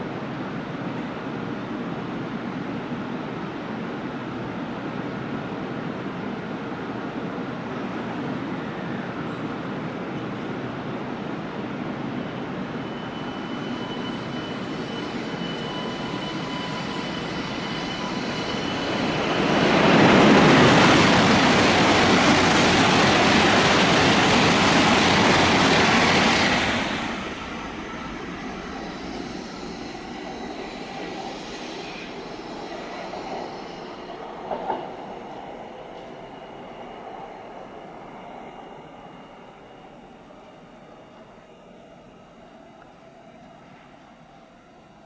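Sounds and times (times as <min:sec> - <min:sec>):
train rushing past: 0:11.3 - 0:42.4.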